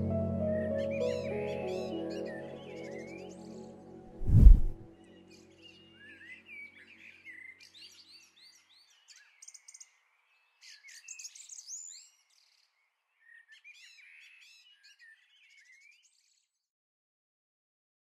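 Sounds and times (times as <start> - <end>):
birds chirping and singing: 5.3 - 10.0, 10.6 - 16.4.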